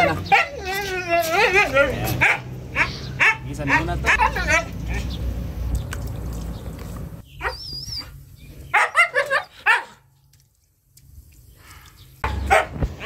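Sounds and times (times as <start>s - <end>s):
dog barking: 1.6s - 5.0s, 8.7s - 10.0s, 12.4s - 12.8s.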